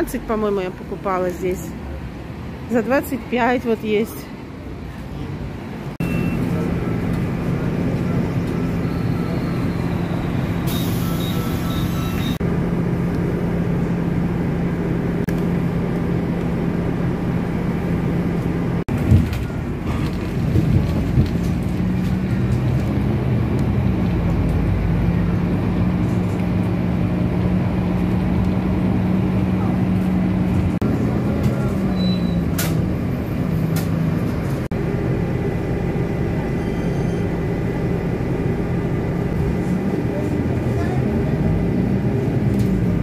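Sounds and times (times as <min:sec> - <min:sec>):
bus engine hum: 0:00.0 - 0:43.0
road noise: 0:00.0 - 0:43.0
short electronic beeps: 0:06.0 - 0:06.6, 0:08.6 - 0:12.4.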